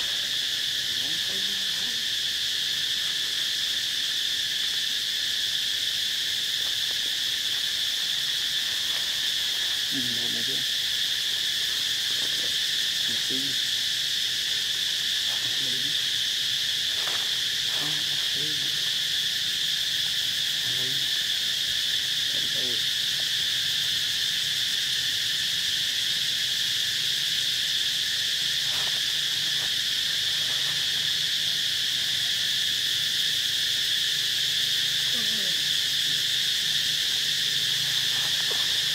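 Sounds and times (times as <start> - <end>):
high insect drone: 0.0 - 38.9.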